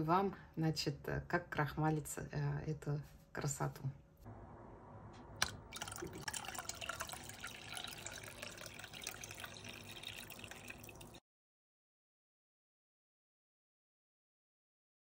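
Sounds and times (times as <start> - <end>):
liquid pouring into water: 5.4 - 11.2.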